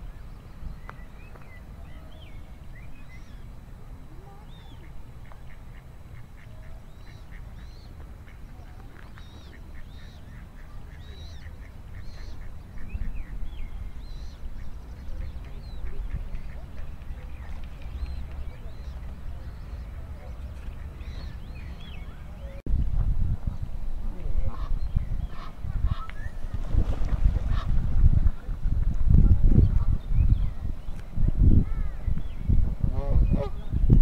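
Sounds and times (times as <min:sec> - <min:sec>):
songbird calls: 0:00.0 - 0:22.6
ducks quacking: 0:04.6 - 0:08.8, 0:09.4 - 0:13.3, 0:24.5 - 0:26.2, 0:27.2 - 0:27.9.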